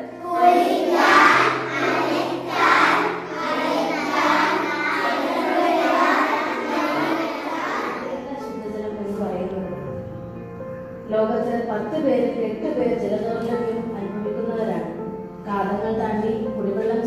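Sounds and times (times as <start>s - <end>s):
soft background music: 0.0s - 17.0s
children calling out together: 0.2s - 8.1s.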